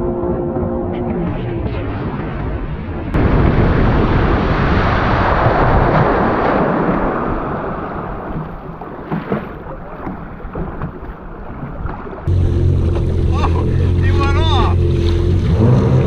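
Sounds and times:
wind buffeting microphone: 0.0s - 11.0s
splashing water: 3.4s - 16.0s.

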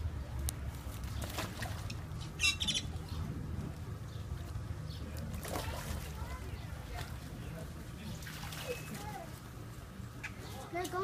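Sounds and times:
steady low rumble: 0.0s - 5.4s.

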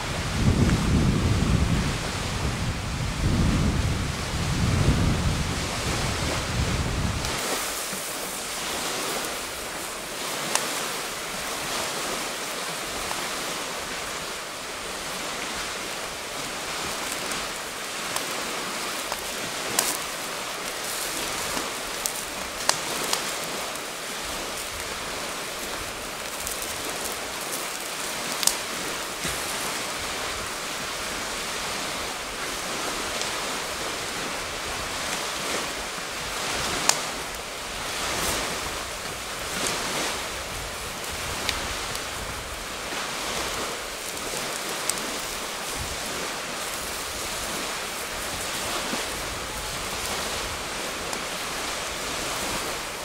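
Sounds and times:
wind buffeting microphone: 0.0s - 53.0s
campfire hissing: 1.5s - 53.0s
burning wood crackling pops: 7.2s - 11.6s, 16.0s - 30.2s, 40.5s - 51.3s.

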